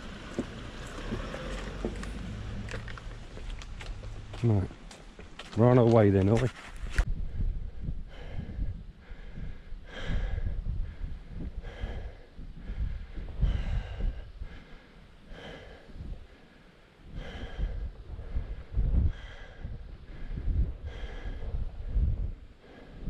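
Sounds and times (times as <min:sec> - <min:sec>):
low rumble on microphone: 0:06.8 - 0:23.0
person breathing hard: 0:07.1 - 0:23.0.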